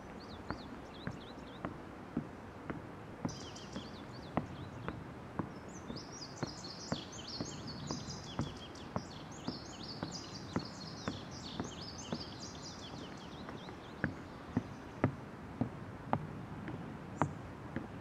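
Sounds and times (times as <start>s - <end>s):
birds chirping: 0.0s - 18.0s
footsteps on wooden deck: 0.0s - 18.0s.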